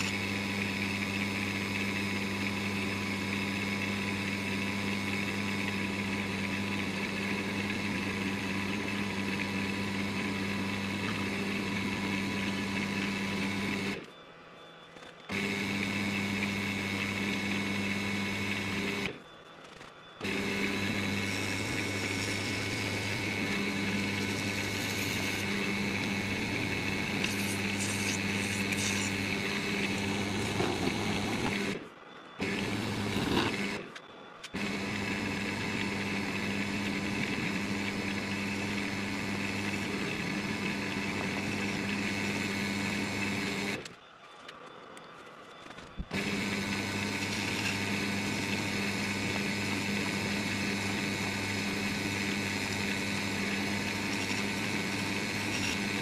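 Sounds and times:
wood lathe motor humming: 0.0 - 14.1, 15.3 - 19.2, 20.2 - 31.8, 32.4 - 33.9, 34.5 - 43.9, 46.0 - 56.0
turning tool scraping wax: 20.2 - 31.8, 32.4 - 33.8, 46.2 - 56.0.

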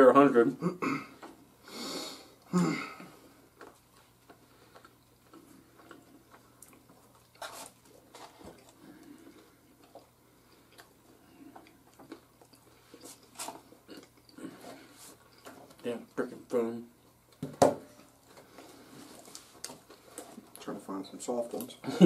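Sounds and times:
crunching and chewing: 3.6 - 16.2.

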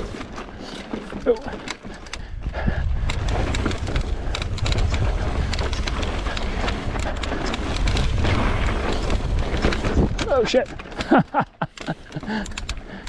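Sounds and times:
bike clicks and rattles: 0.0 - 13.0
bike tyres rolling over rock: 0.0 - 13.0
wind rumbling on microphone: 1.9 - 10.9.

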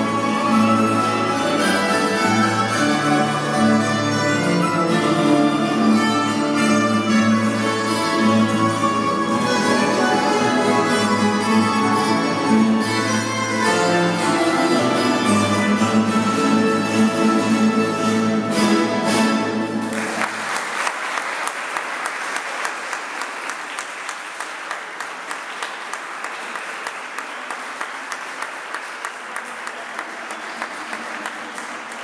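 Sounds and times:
plucked string ensemble: 0.0 - 20.4
audience applauding: 19.8 - 32.0.

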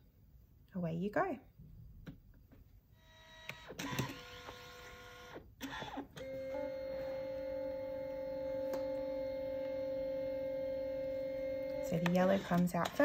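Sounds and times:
printer motor whine: 3.0 - 13.0
printer clicks: 11.6 - 13.0.

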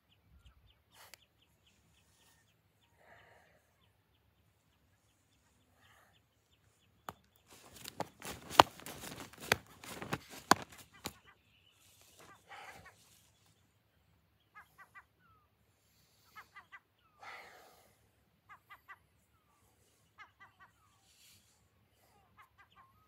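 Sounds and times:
bird calls: 0.0 - 17.7, 18.3 - 23.0
clothing rustling: 7.5 - 11.2
feet stamping on grass: 7.5 - 11.2.

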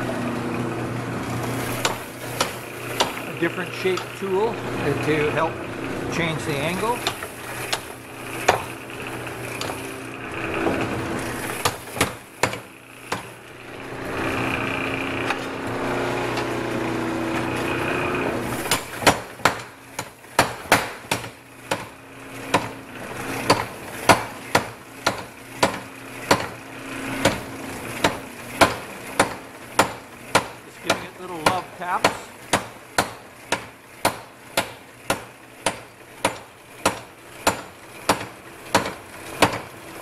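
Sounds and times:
power hammer machine humming: 0.0 - 40.0
power hammer blows on steel: 27.2 - 39.6.

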